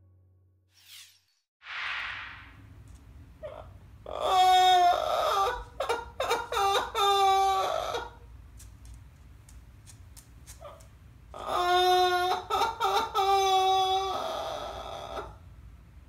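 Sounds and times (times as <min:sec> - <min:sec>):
parrot mimicking crying baby: 0:03.4 - 0:08.2, 0:11.4 - 0:15.4.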